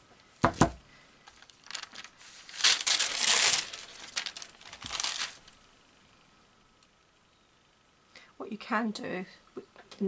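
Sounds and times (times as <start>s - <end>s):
paper crinkling: 1.2s - 5.6s.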